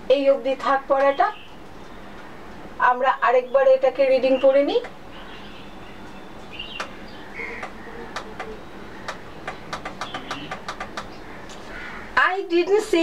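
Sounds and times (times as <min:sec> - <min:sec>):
faint steady hum: 0:00.0 - 0:13.0
laptop clicks: 0:06.7 - 0:07.0, 0:07.6 - 0:11.2.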